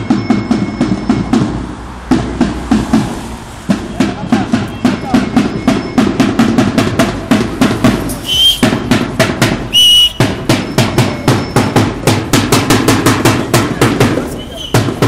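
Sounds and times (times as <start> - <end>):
drums beaten fast: 0.0 - 15.0
shrill whistle blown: 8.2 - 8.8, 9.7 - 11.8, 14.4 - 14.9.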